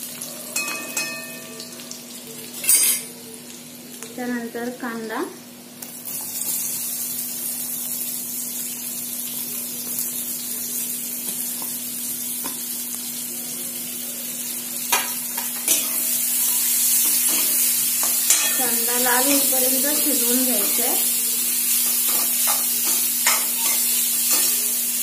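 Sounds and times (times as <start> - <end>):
onions sizzling in oil: 0.0 - 25.0.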